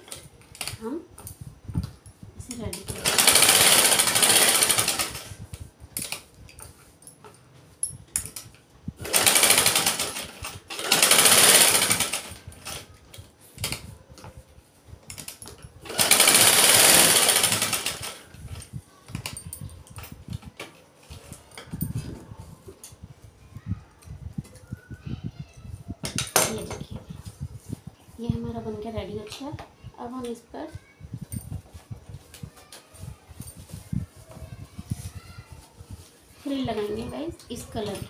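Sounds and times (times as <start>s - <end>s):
sewing machine stitching: 2.7s - 5.3s, 9.0s - 12.9s, 15.8s - 18.2s.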